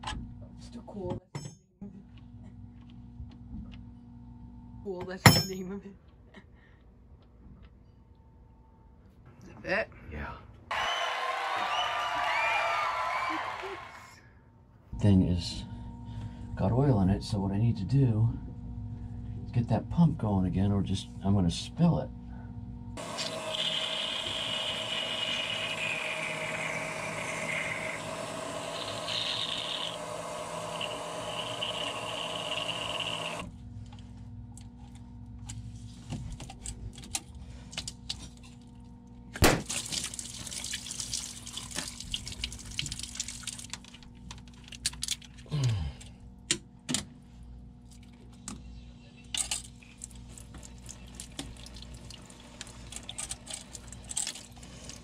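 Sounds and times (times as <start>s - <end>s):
pump whining: 23.0s - 33.5s.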